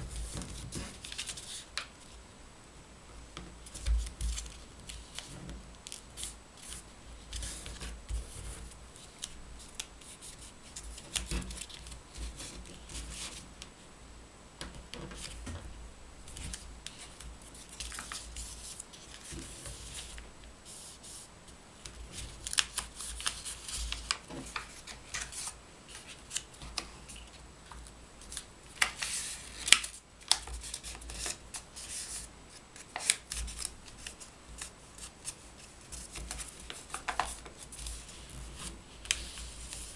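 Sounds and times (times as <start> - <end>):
paper rustling and crinkling: 0.0 - 2.2, 3.6 - 13.4, 16.3 - 39.9.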